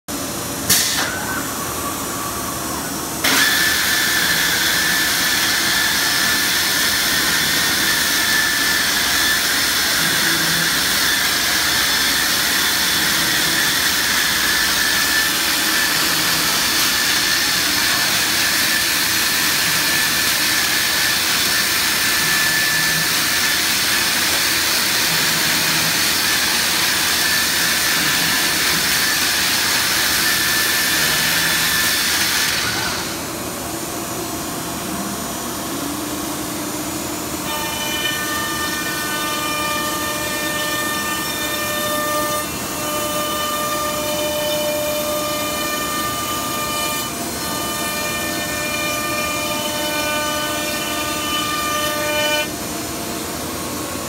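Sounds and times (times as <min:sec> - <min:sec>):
machine high whine: 0:00.1 - 0:54.0.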